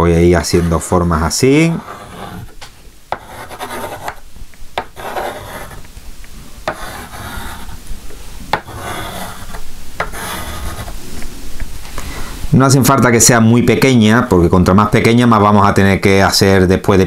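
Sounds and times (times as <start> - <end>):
pencil scratching on tray: 0.4 - 0.9, 1.6 - 4.2, 4.8 - 5.9, 6.6 - 7.8, 8.5 - 11.0.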